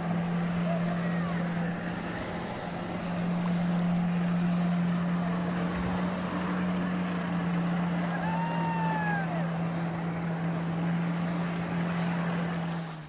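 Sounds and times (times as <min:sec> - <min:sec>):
jet ski engine drone: 0:00.0 - 0:13.0.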